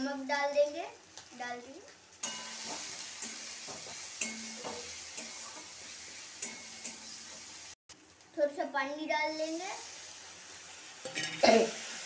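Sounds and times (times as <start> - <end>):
food sizzling in hot oil: 0.0 - 12.0
spoon scraping pan: 2.2 - 7.5.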